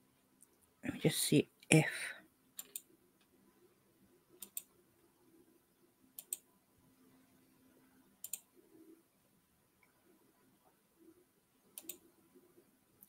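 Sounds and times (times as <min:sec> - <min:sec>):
faint low hum: 0:00.0 - 0:13.0
computer mouse double-clicking: 0:02.6 - 0:02.8, 0:04.4 - 0:04.7, 0:06.2 - 0:06.4, 0:08.2 - 0:08.5, 0:11.8 - 0:12.0.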